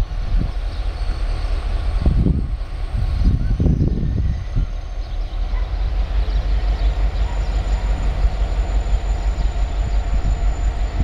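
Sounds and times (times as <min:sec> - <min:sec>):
diesel locomotive rumbling drone: 0:00.0 - 0:11.0.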